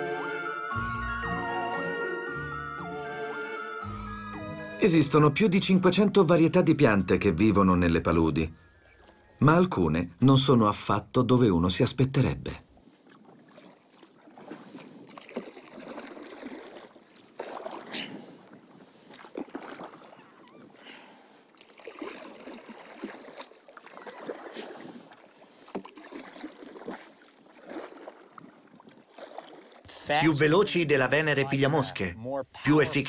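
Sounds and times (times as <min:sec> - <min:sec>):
paddle splashing in water: 0:12.7 - 0:30.2.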